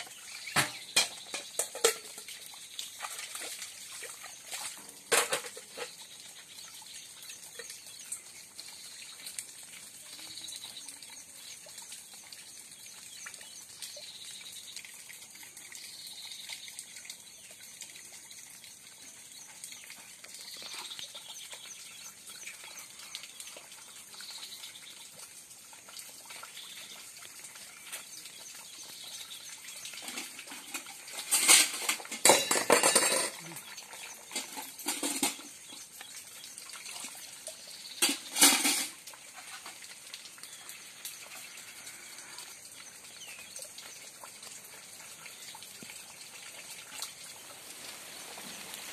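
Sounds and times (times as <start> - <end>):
water splashing: 0.0 - 6.2, 25.1 - 48.9
metal pots knocking together: 0.4 - 2.4, 4.7 - 6.0, 30.0 - 35.9, 38.0 - 39.8.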